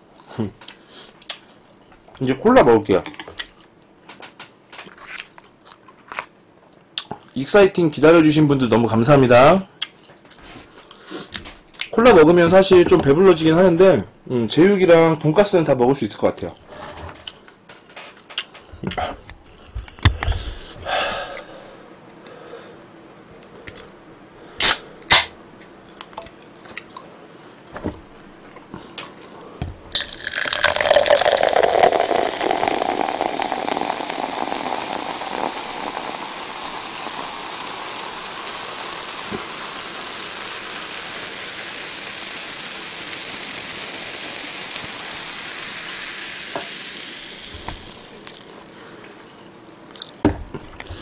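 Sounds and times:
cola pouring into cup: 29.9 - 49.1
carbonation fizzing: 29.9 - 51.0.

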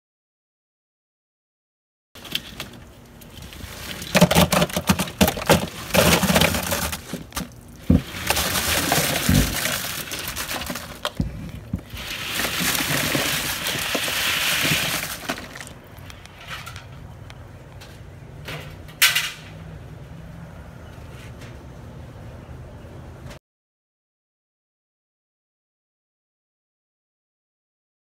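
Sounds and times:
crawfish pile sliding in: 8.0 - 11.1, 11.9 - 15.7.

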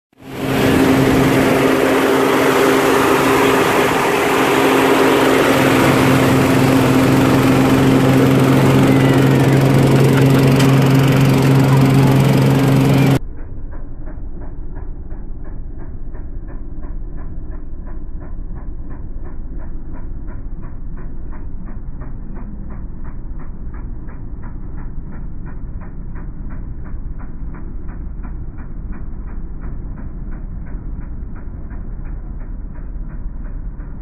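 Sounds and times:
engine and pump hum: 0.1 - 34.0
muffled pulsing sound: 0.1 - 34.0.

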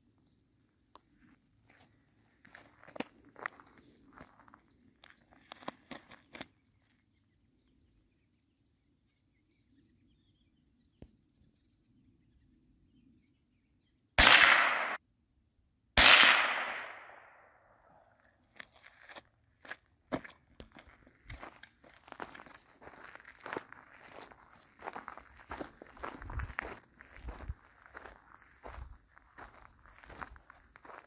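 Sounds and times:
crunches on gravel: 1.6 - 7.0, 18.2 - 31.0
gunshots: 14.2 - 15.0, 16.0 - 17.4.

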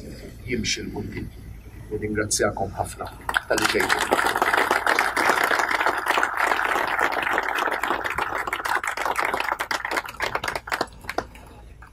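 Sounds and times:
crowd applauding: 3.3 - 11.9.

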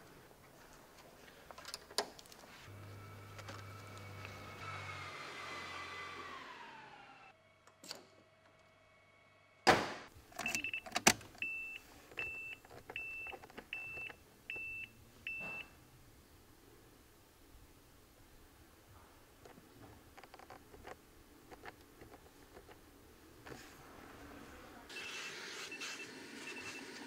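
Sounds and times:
loud sharp knock: 9.7 - 10.1.

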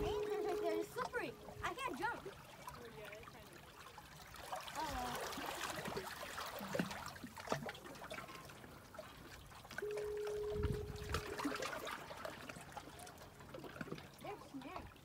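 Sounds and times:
seawater washing among rocks: 0.0 - 9.8.

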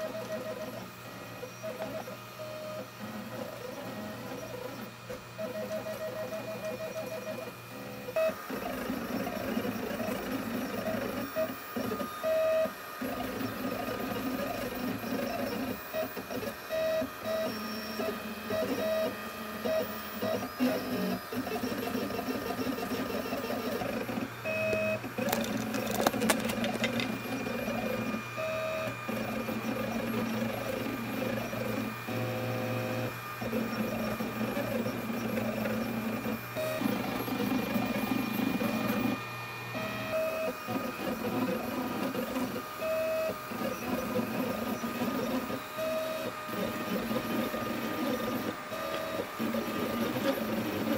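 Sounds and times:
stepper motors whining: 17.1 - 30.1.

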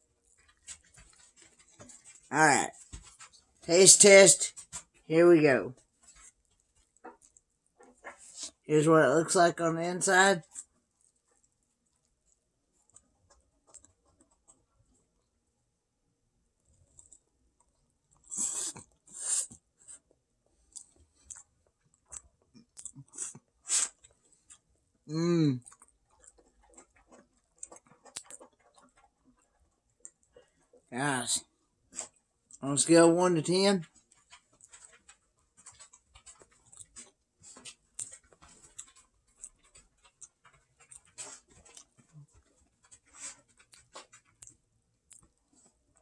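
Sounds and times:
man chewing noodles: 5.9 - 8.6, 10.4 - 15.6, 16.5 - 32.6, 33.8 - 46.0.

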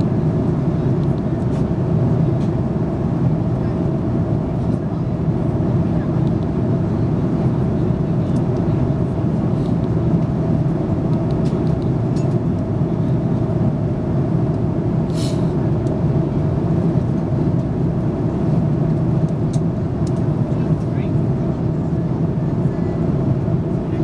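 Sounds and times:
airliner cabin drone: 0.0 - 24.0
brief hiss: 15.1 - 15.5.

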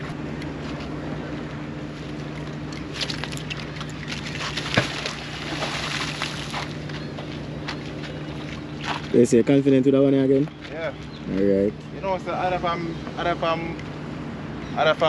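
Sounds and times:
steady low hum: 0.0 - 15.0
magnet splashing into water: 2.7 - 6.7.

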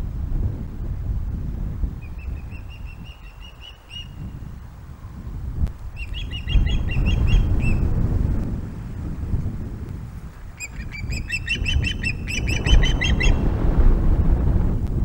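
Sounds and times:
ospreys chirping: 2.0 - 4.3, 6.0 - 7.9, 10.6 - 13.4
low rumble: 12.1 - 15.0.

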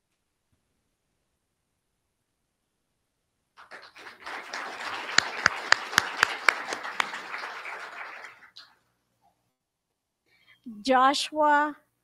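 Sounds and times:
audience applause: 3.6 - 8.8
sharp loud claps: 3.6 - 8.8.

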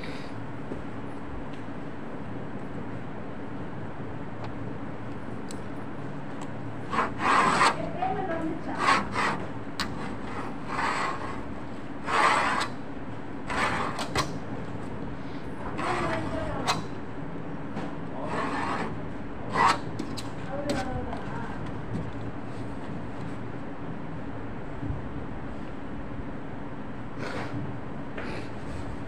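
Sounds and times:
steady hum: 0.0 - 29.0
knife scraping through material: 6.9 - 7.8, 8.7 - 12.8, 18.2 - 20.1.

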